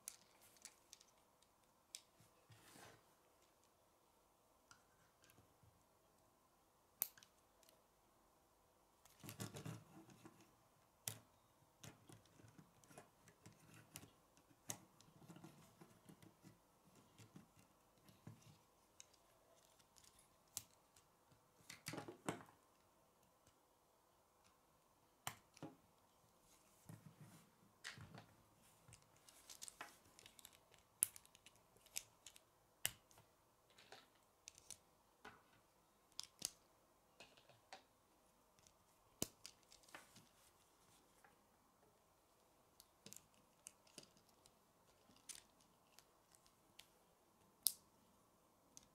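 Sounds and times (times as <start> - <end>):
rustle of plastic parts: 0.0 - 3.7, 26.5 - 32.5, 43.0 - 46.9.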